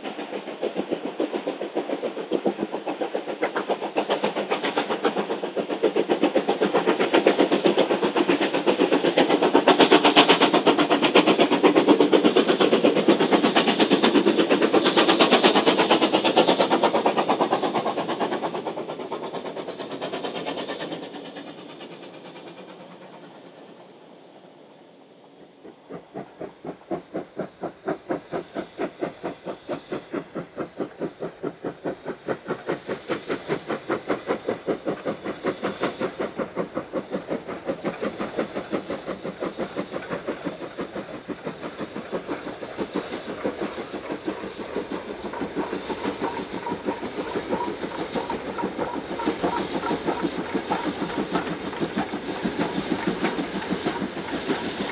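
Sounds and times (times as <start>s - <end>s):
steam locomotive exhaust beats: 0.0s - 54.9s.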